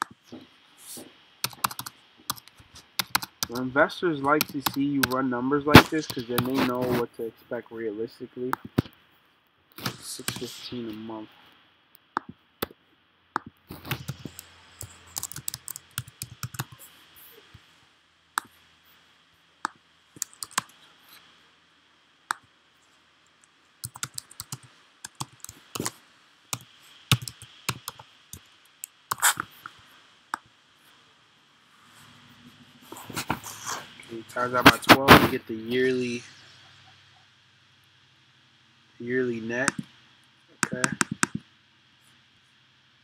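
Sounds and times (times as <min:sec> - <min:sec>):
computer keyboard typing: 0:01.4 - 0:03.6, 0:04.2 - 0:07.0, 0:09.8 - 0:10.6, 0:13.4 - 0:16.8, 0:20.2 - 0:20.7, 0:23.8 - 0:25.9, 0:26.5 - 0:29.6, 0:40.6 - 0:41.4.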